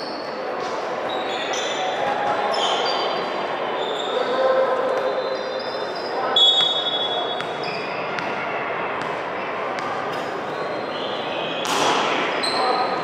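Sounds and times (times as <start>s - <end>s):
murmur of crowd voices: 0.0s - 13.0s
shoes squeaking on court floor: 5.0s - 11.8s
volleyball hits: 11.5s - 12.3s.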